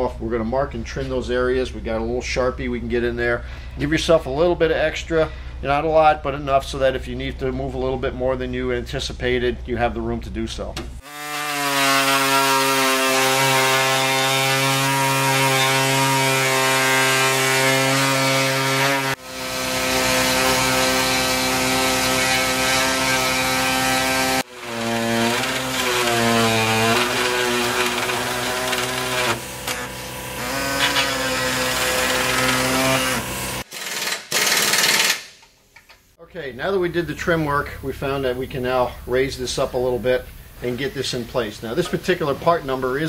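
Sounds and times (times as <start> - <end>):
air-powered saw buzzing: 11.0 - 35.4.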